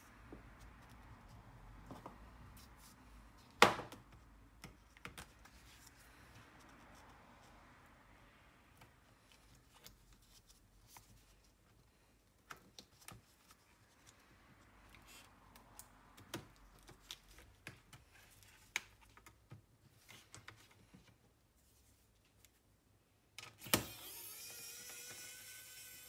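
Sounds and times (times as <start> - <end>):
electric screwdriver motor whirring: 23.6 - 26.0.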